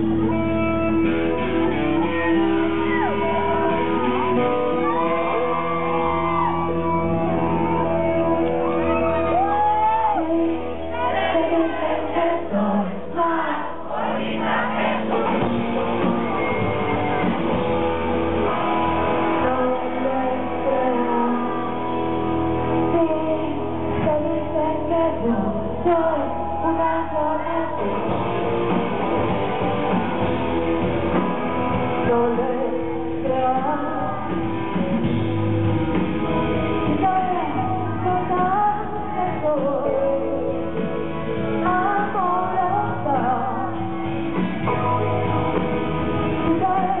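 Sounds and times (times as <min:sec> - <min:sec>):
live rock band with electric guitar: 0:00.0 - 0:47.0
woman singing: 0:08.4 - 0:14.3, 0:19.1 - 0:28.3, 0:31.8 - 0:34.5, 0:36.8 - 0:44.2, 0:46.3 - 0:47.0.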